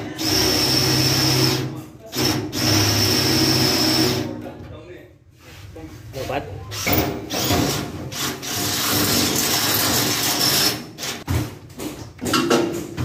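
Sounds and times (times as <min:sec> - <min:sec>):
knocks and clatter of drill: 0:06.8 - 0:13.0.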